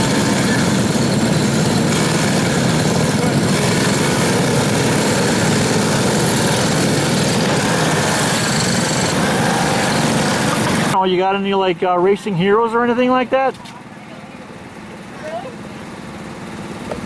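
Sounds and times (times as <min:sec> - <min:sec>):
kart engines running: 0:00.0 - 0:17.0.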